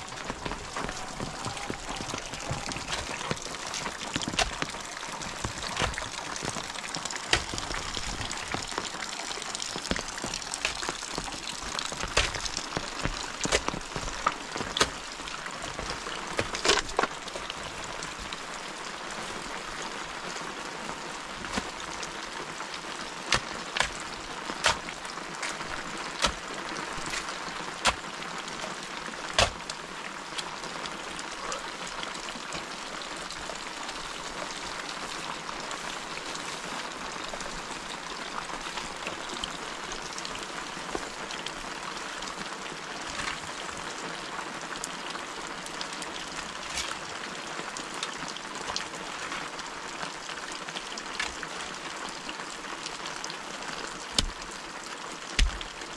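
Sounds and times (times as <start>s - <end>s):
sharp water drips: 0.0s - 18.5s, 54.0s - 55.8s
steady rain falling: 0.0s - 55.9s.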